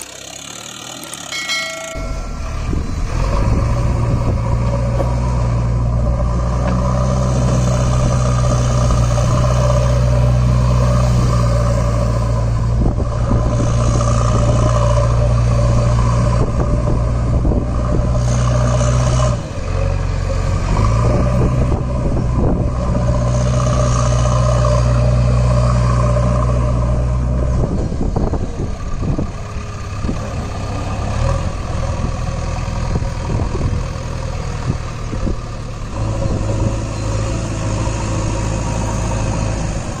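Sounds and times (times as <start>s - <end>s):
diesel engine idling: 0.0s - 18.4s.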